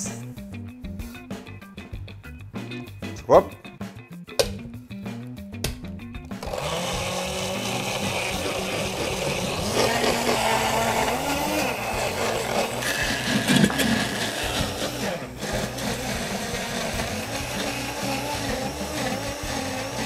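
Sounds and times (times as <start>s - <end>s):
blender motor grinding: 6.3s - 20.0s.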